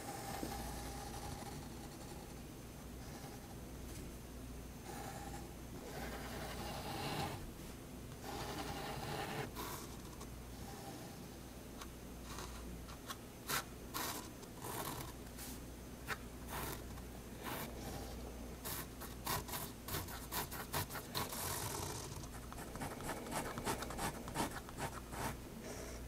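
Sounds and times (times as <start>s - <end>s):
pen scratching on paper: 5.9s - 7.4s, 8.2s - 10.2s, 13.5s - 15.1s, 16.1s - 25.4s.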